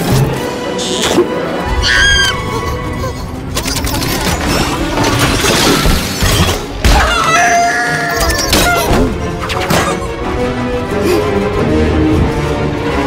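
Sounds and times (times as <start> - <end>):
orchestral cartoon music: 0.0 - 13.0
chicken squawking frantically: 1.8 - 2.5.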